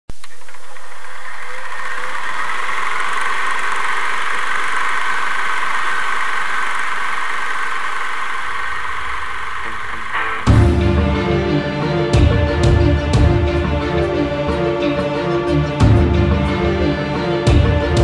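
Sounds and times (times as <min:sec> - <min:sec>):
film projector whirring: 0:00.1 - 0:10.5.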